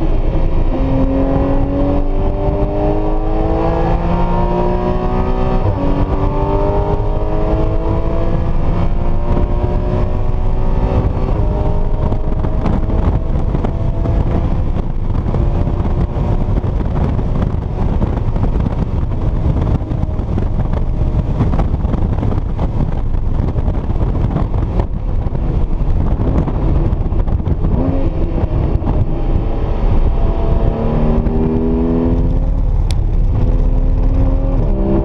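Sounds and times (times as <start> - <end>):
car engine accelerating: 0.0 - 35.0
road and wind rumble: 0.0 - 35.0.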